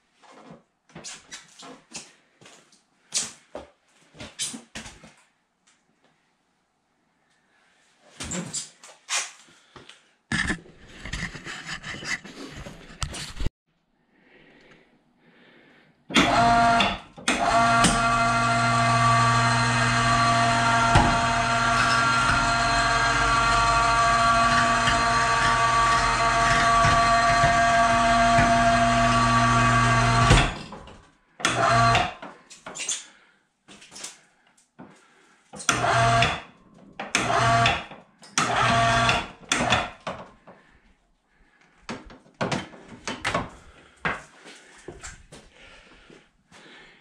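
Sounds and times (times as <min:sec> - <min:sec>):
electric winch motor whining: 0:16.2 - 0:32.2, 0:35.6 - 0:36.4, 0:37.1 - 0:39.9.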